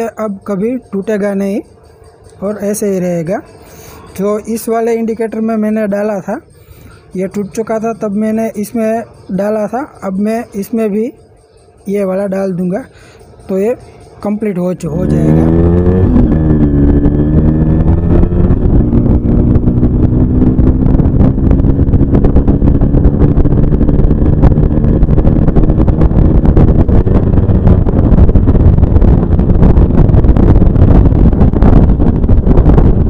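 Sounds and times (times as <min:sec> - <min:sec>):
two-stroke motorcycle engine running: 0:12.9 - 0:33.0.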